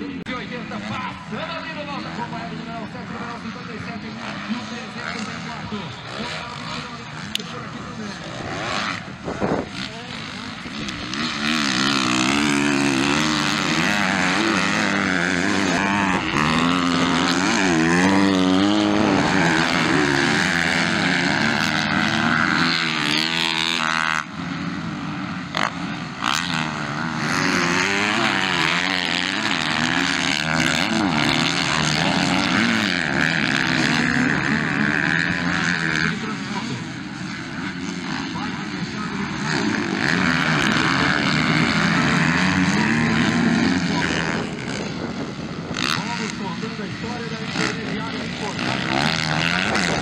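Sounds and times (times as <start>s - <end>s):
motocross bike engines revving: 0.0s - 50.0s.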